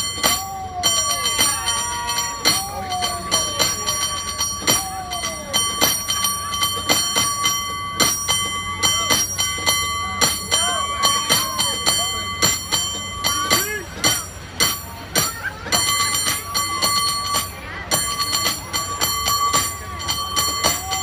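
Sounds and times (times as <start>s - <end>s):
bell rung rapidly: 0.0s - 21.0s.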